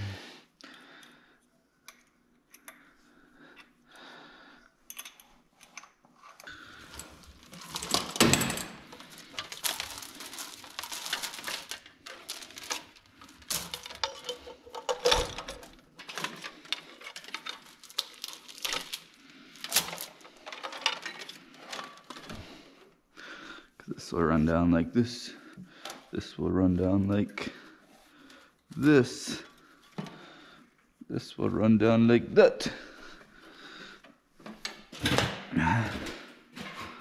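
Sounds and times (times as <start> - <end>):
plastic tubing clattering and rustling: 5.6 - 22.9, 27.4 - 30.6.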